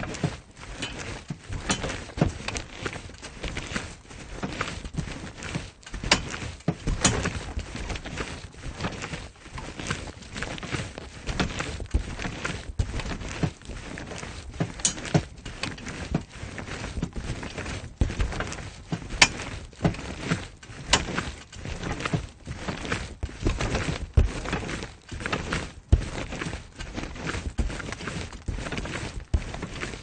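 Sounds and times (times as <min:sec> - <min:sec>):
trampoline mat thumps: 0:06.0 - 0:08.0, 0:23.2 - 0:24.6.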